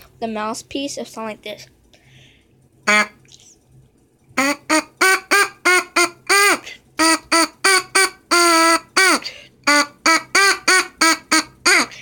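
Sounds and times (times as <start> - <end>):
buzzy trumpet mouthpiece blats: 2.9 - 3.2.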